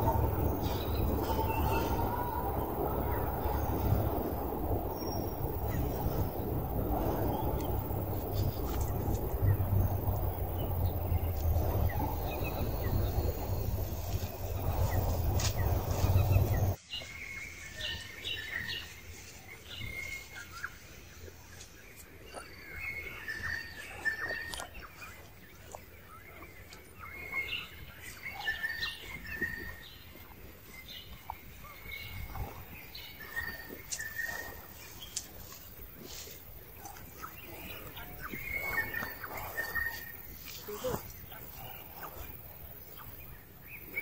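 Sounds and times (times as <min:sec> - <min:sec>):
loud rumbling: 0:00.0 - 0:16.8
birds chirping: 0:00.0 - 0:44.0.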